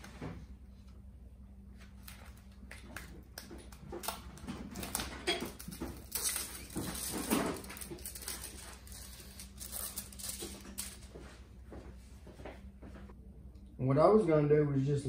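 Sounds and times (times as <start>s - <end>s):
vinyl film rustling and crinkling: 1.8s - 11.5s.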